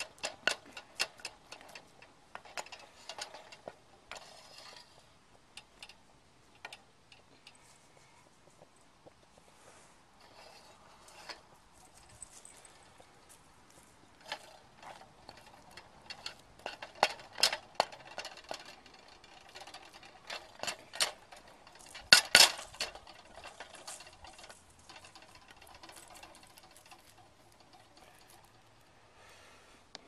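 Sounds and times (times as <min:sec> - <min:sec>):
utensil scraping metal pot: 0:02.4 - 0:05.1.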